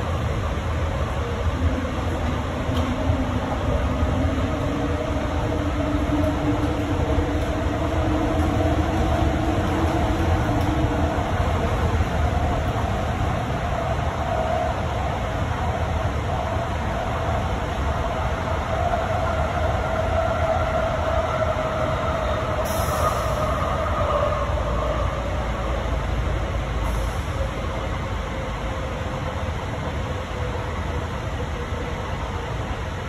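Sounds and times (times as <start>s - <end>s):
train rumble with motor whine: 0.0s - 33.0s.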